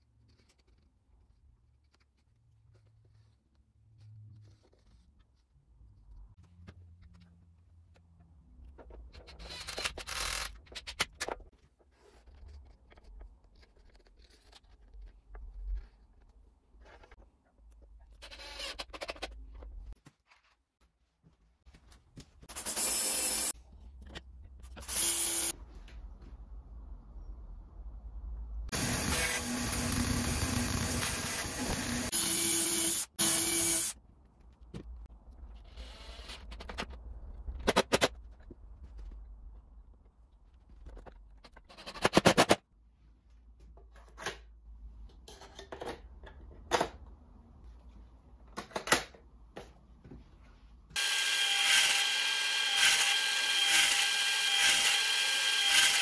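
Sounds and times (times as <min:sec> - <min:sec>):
quiet drilling: 0:24.8 - 0:25.5
bandsaw cutting wood: 0:51.0 - 0:56.0.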